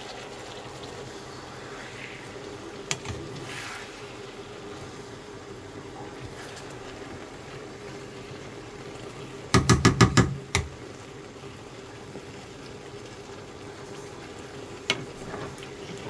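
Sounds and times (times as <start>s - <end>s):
food frying hiss: 0.0s - 16.0s
wooden spatula knocking on pan: 9.5s - 10.7s.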